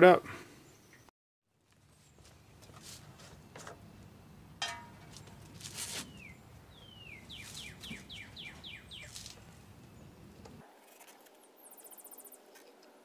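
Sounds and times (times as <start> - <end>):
rustling handling noise: 1.6 - 3.8, 4.8 - 6.4
sharp metallic clank: 4.6 - 5.4
songbird whistles and chirps: 6.1 - 10.1.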